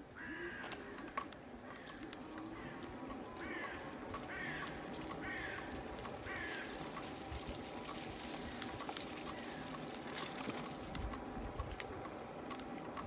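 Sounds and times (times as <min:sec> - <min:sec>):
crow cawing: 0:00.1 - 0:07.1.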